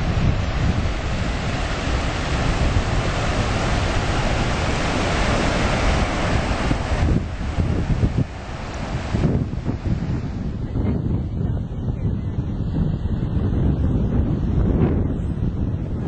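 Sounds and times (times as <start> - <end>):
surf washing up beach: 0.0 - 16.0
wind buffeting microphone: 0.0 - 16.0.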